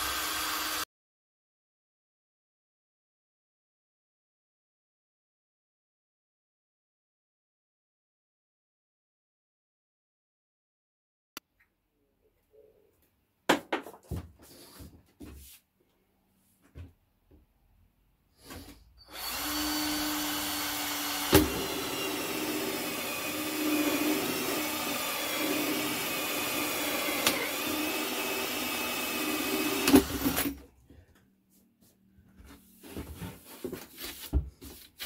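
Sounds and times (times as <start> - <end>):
power drill cutting plastic pipe: 0.0 - 0.9, 18.4 - 30.6.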